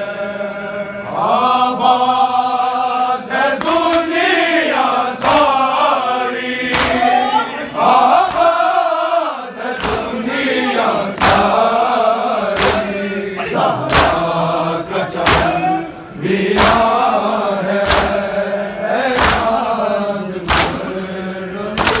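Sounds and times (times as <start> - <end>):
crowd of men chanting: 0.0 - 22.0
hands slapping chests: 3.6 - 4.1, 6.7 - 7.2, 8.2 - 8.7, 9.7 - 10.2, 11.2 - 11.6, 12.5 - 13.0, 13.8 - 14.4, 15.2 - 15.7, 16.6 - 17.0, 17.8 - 18.2, 19.1 - 19.7, 20.5 - 20.9, 21.6 - 22.0.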